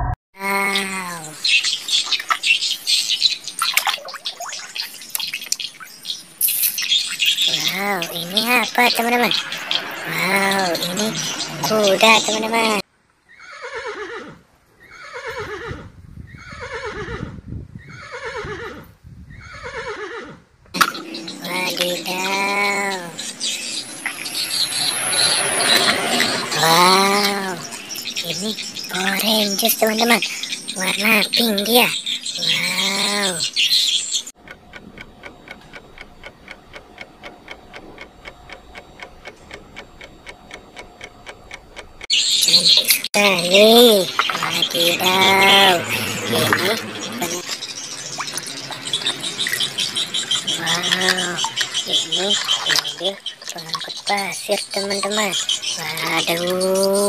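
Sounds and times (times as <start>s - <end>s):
horse whinnying: 13.3s - 20.4s
rapid clock-like ticking: 34.3s - 42.1s.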